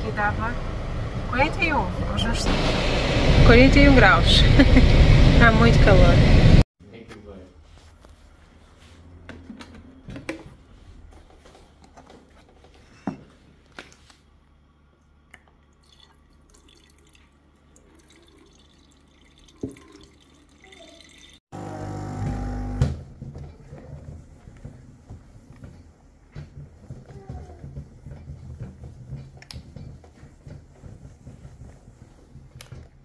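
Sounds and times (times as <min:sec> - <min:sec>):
water dripping: 0:15.3 - 0:21.4.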